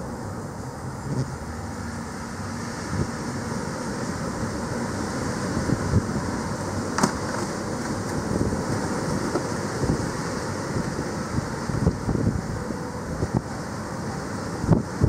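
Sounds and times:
wind buffeting microphone: 2.7 - 15.0.

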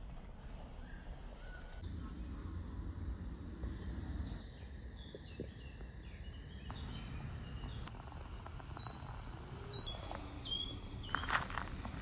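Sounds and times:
bird chirping: 1.8 - 7.9
steady low rumble: 1.8 - 12.0.

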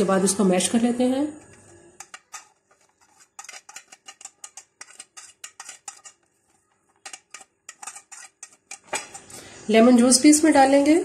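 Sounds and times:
utensil scraping a ceramic plate: 1.6 - 9.4.

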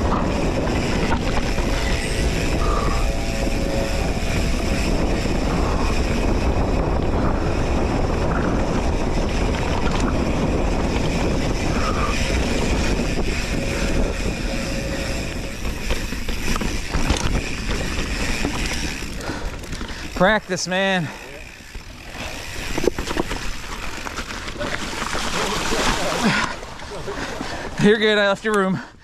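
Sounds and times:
wind rushing over microphone: 0.0 - 20.2
bike knocking and rattling: 0.0 - 28.9
bike tyres on dirt trail: 0.0 - 29.0.

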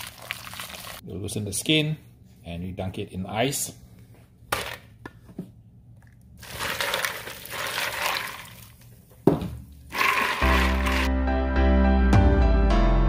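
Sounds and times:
ice cubes rattling in glass bowl: 6.4 - 8.7, 9.9 - 11.1
background music: 10.0 - 13.0.

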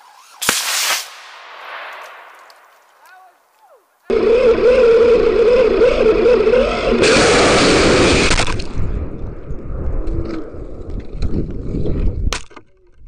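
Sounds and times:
rocket motor roar: 4.1 - 11.2
wind noise on microphone: 4.4 - 13.0.

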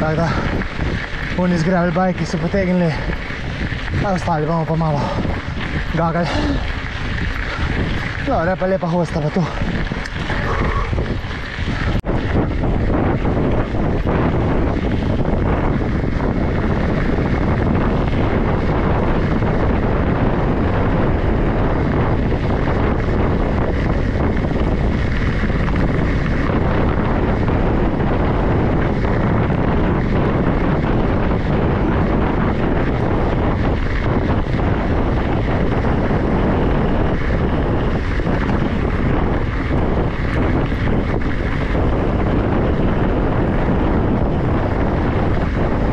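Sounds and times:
stones and bike parts rattling: 0.0 - 45.9
tyres rumbling on gravel: 0.0 - 45.9
wind buffeting microphone: 0.0 - 45.9.

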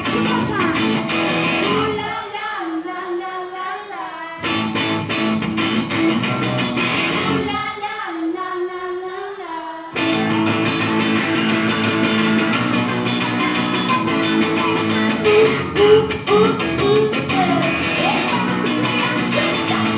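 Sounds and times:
strummed electric guitar: 0.0 - 2.2, 4.4 - 7.6, 9.9 - 19.9
woman singing: 0.0 - 4.5, 7.2 - 11.8, 12.8 - 19.9.

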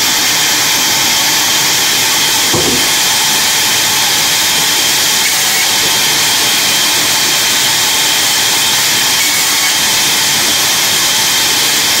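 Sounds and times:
bandsaw cutting wood: 0.0 - 12.0.

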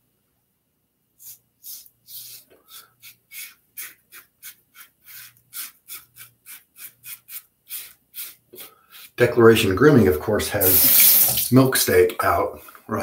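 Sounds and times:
razor scraping stubble: 1.2 - 9.2.

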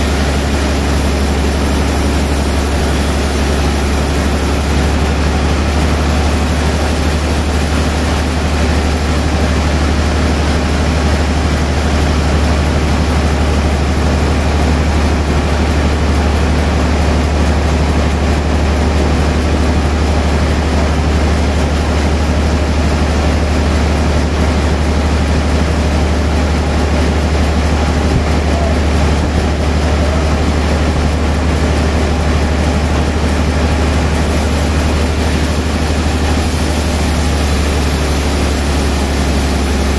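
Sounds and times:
band saw cutting log: 0.0 - 9.2, 34.1 - 39.9.

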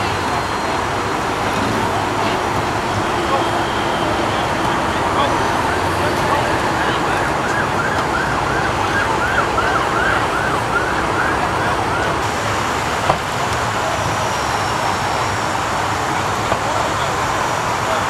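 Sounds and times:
traffic rumble: 0.0 - 18.0
siren yelping: 2.8 - 12.4.

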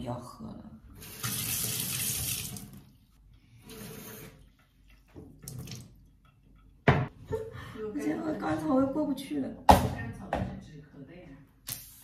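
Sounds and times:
kitchen tap running: 0.9 - 3.0, 3.6 - 6.9.

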